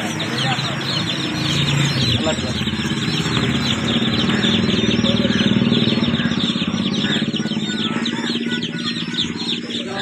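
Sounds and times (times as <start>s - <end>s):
small birds chirping: 0.0s - 10.0s
small engine running: 0.0s - 10.0s.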